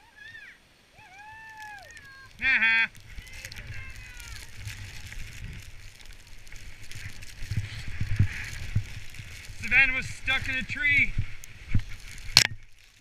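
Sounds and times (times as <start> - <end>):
people calling out: 0.0 - 5.0
skis running through powder snow: 1.0 - 13.0
wind rumbling on microphone: 1.0 - 13.0.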